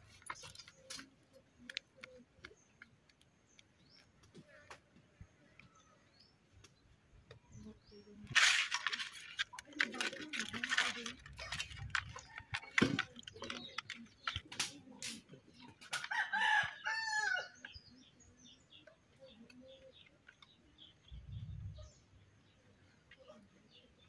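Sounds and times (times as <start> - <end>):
sharp clicks and knocks: 8.3 - 16.1
rooster crowing: 16.1 - 17.6.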